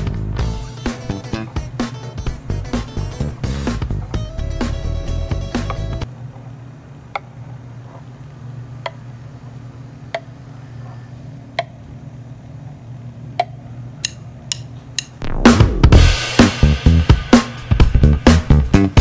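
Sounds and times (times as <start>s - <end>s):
guitar music: 0.0s - 6.1s
steady low hum: 0.0s - 18.9s.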